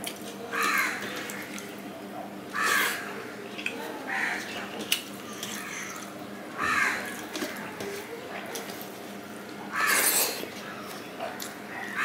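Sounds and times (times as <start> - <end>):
crow cawing: 0.5 - 1.0, 2.6 - 3.0, 6.6 - 7.1.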